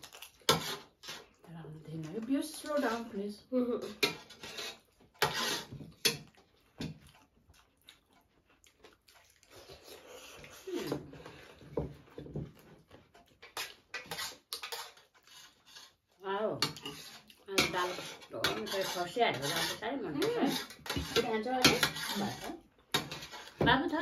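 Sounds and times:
chewing and lip-smacking: 5.9s - 15.3s.

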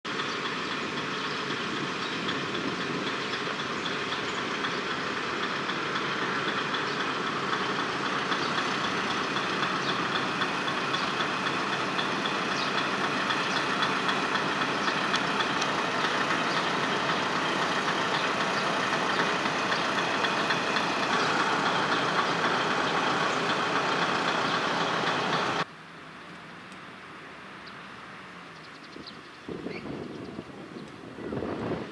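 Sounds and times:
diesel engine idling: 0.0s - 25.8s
wind noise: 29.0s - 31.9s.

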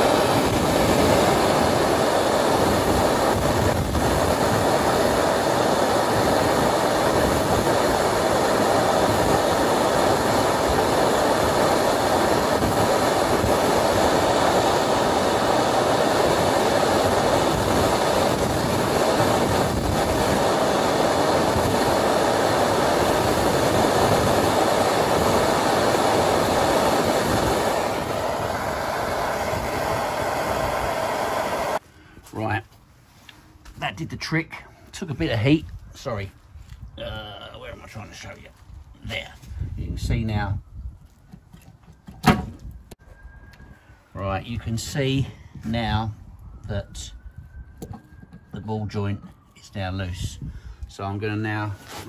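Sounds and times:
blowtorch flame hissing: 0.0s - 31.8s.

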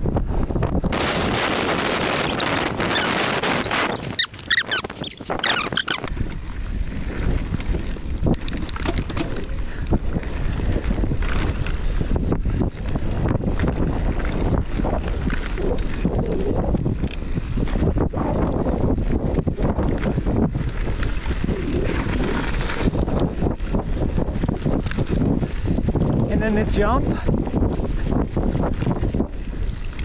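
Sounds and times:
low rumble of bike riding: 0.0s - 30.0s
wind on microphone: 0.0s - 30.0s
bike clicks and rattles: 0.9s - 26.2s, 27.2s - 30.0s
brief wavering squeaks: 1.6s - 6.1s.

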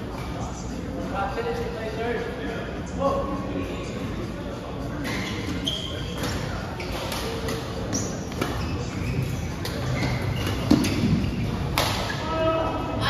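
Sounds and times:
sneakers squeaking: 4.9s - 12.8s
thumps and knocks on indoor court: 6.2s - 12.2s.

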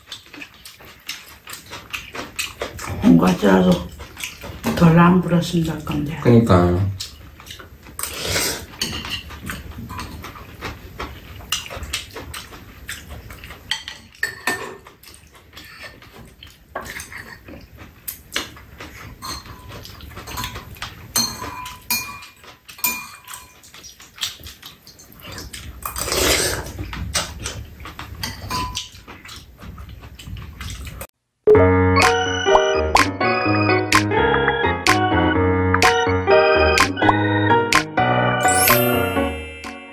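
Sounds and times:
slurping and chewing: 0.0s - 5.0s, 6.9s - 31.1s
spoons clinking on ceramic bowls: 19.2s - 19.7s, 21.2s - 23.6s.

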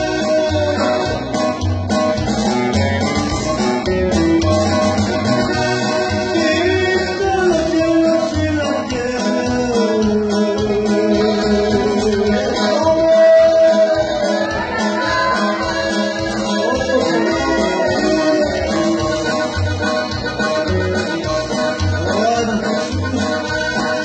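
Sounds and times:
man singing a hymn: 0.0s - 1.6s, 5.5s - 20.0s, 21.0s - 24.0s
guitar: 0.0s - 24.0s
steady bass beat: 0.0s - 24.0s.

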